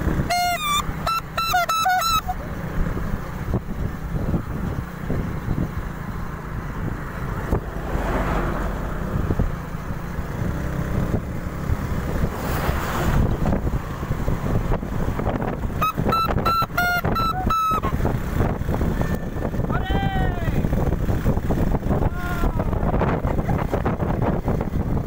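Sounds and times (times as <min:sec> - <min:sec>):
wind buffeting microphone: 0:02.2 - 0:25.0.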